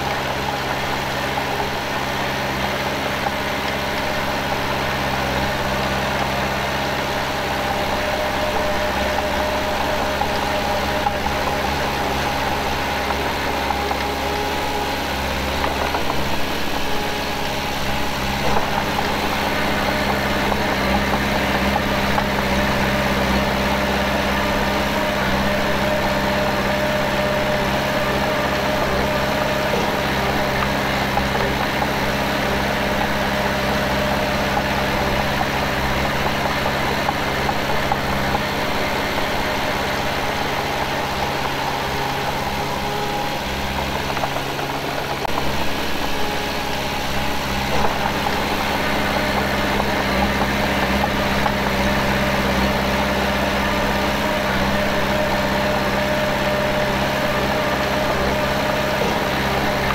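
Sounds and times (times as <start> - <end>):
diesel engine running steadily: 0.0 - 59.9.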